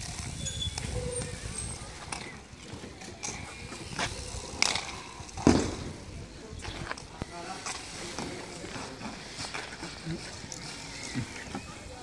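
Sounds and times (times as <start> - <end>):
dull thump: 5.4 - 5.9.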